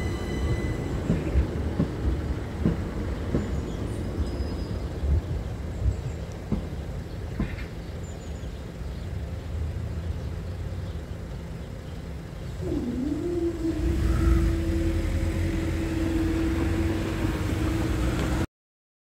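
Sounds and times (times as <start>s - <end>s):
barrier motor whine: 0.0s - 1.6s, 12.6s - 18.5s
low rumble of cars: 0.0s - 18.5s.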